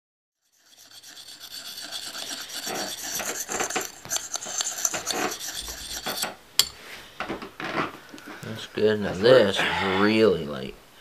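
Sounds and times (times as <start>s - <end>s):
sharpening stone scraping steel blade: 0.4s - 6.8s.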